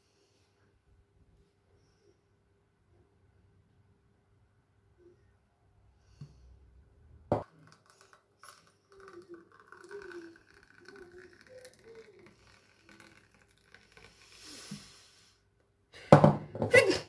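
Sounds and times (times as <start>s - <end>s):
thick liquid pouring into glass: 7.3s - 14.8s
faint gurgling: 7.4s - 15.0s.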